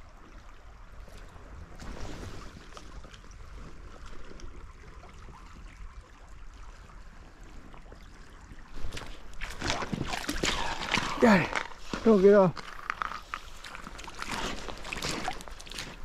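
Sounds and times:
creek water over gravel: 0.0 - 16.0.

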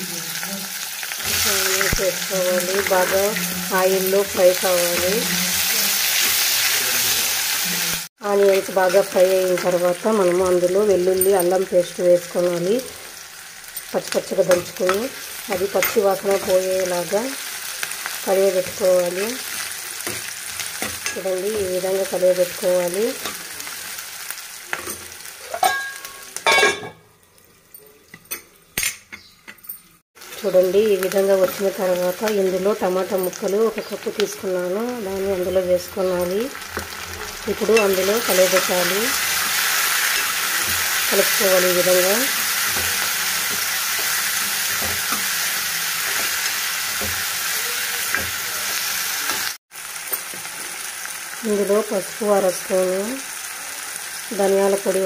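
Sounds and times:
onions sizzling in hot oil: 0.0 - 26.6, 30.2 - 55.0
steel spoon scraping pan: 37.6 - 48.4.

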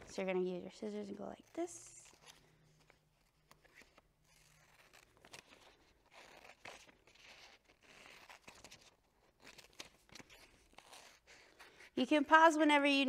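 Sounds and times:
paper crinkle: 1.4 - 11.8.

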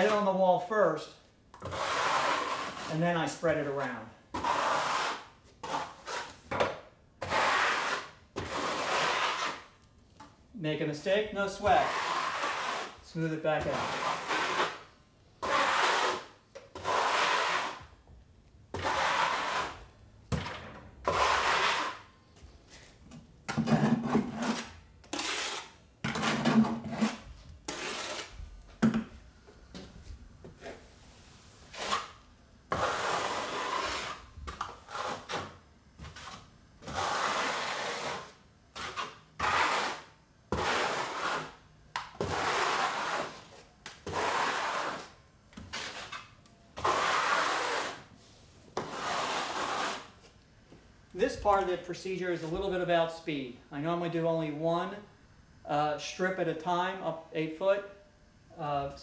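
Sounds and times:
trowel scraping mortar on drywall: 0.0 - 0.2, 1.6 - 6.6, 7.2 - 9.8, 11.5 - 17.9, 18.7 - 19.9, 21.0 - 22.1, 23.6 - 28.4, 31.6 - 48.1, 48.8 - 50.3.

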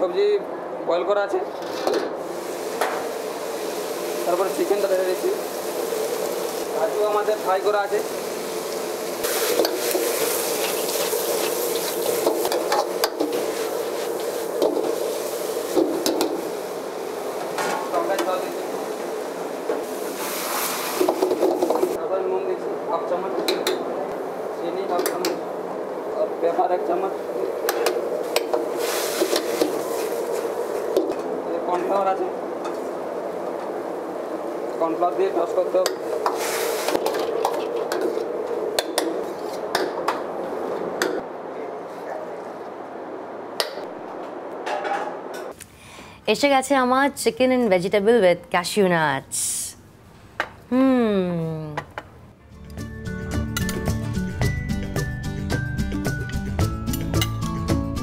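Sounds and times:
gas burner rushing: 1.5 - 22.0, 22.6 - 41.4
food sizzling: 2.2 - 22.0, 22.7 - 41.3.

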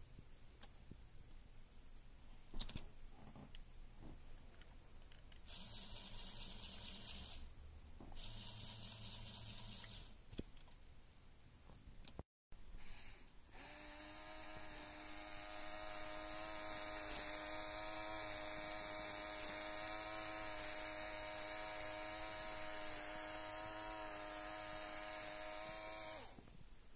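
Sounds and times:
electric motor whirring: 5.5 - 7.5, 8.2 - 10.1, 13.5 - 26.4.

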